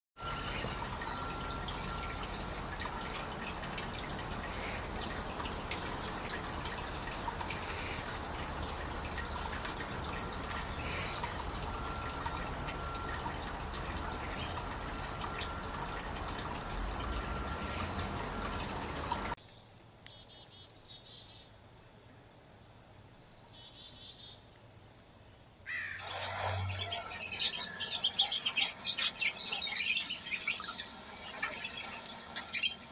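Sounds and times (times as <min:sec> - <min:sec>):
water trickling from a spout: 0:00.2 - 0:19.4, 0:25.7 - 0:32.9
high bird chirps: 0:25.7 - 0:32.9.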